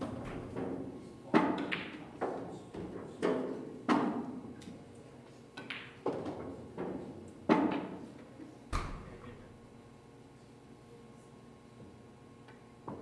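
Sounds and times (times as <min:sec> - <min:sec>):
pool balls clacking: 0:00.0 - 0:04.6, 0:05.6 - 0:08.2.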